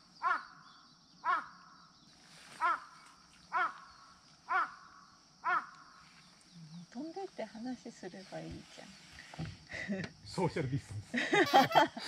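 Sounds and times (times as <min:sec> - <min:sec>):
crow cawing: 0:00.2 - 0:01.8, 0:02.6 - 0:06.0
distant crow answering: 0:00.2 - 0:01.9, 0:02.6 - 0:06.0.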